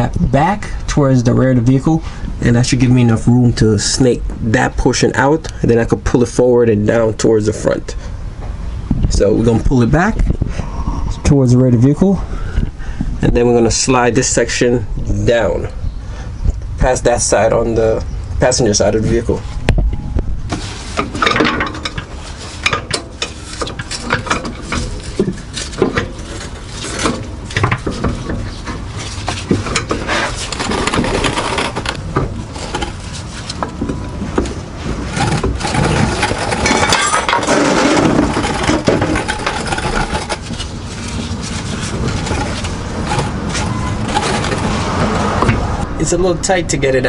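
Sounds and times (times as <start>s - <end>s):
metal clanks and scrapes: 19.1s - 45.8s.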